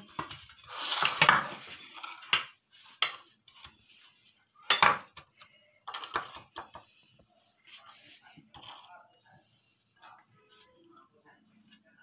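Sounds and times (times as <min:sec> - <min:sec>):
metal spoon scraping a bowl: 0:07.7 - 0:09.1.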